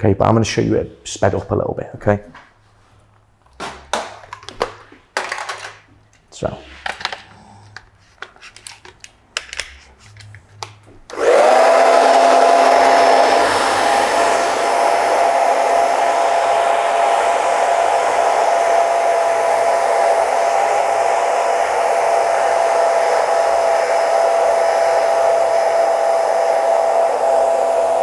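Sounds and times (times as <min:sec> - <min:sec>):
hair dryer running: 0:11.1 - 0:28.0.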